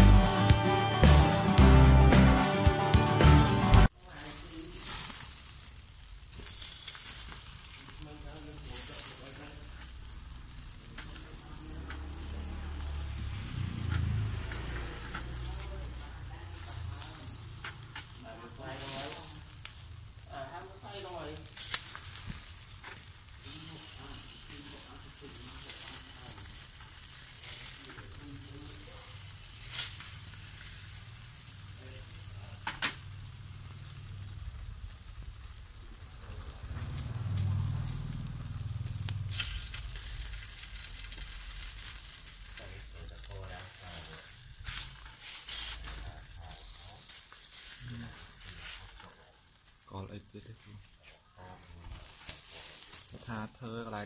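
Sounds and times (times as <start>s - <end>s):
chicken sizzling on grill: 0.0s - 54.0s
low rumble: 33.8s - 43.2s.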